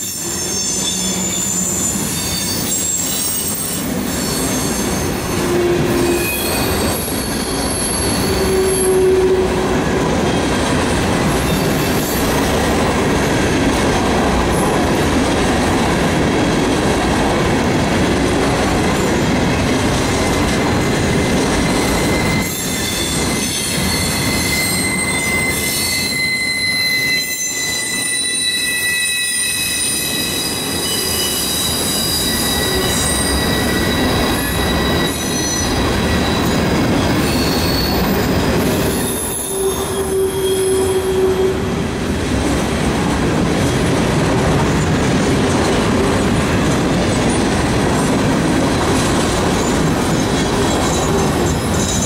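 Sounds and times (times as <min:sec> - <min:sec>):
high-pitched wheel squeal: 0:00.0 - 0:10.7, 0:21.1 - 0:41.8
train wheels rumbling on rail: 0:00.0 - 0:52.0.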